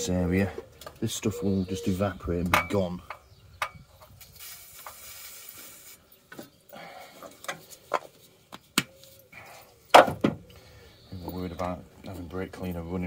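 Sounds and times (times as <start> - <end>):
aerosol can spraying: 4.3 - 6.0.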